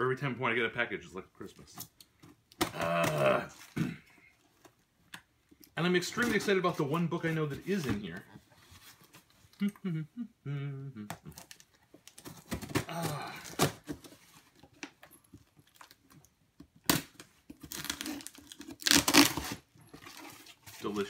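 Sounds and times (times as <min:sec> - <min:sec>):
tape and cardboard tearing: 0:16.8 - 0:20.6
knife slicing packing tape: 0:17.7 - 0:19.6.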